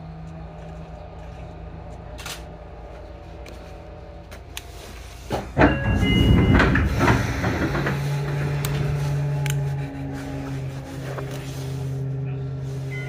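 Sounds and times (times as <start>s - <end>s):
train low hum: 0.0s - 13.0s
train doors sliding shut: 4.6s - 12.1s.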